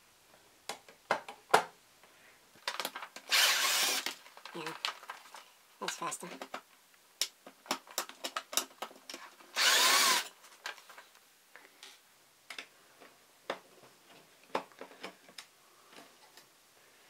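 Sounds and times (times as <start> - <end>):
electric screwdriver whirring: 3.3 - 4.2, 9.6 - 10.3.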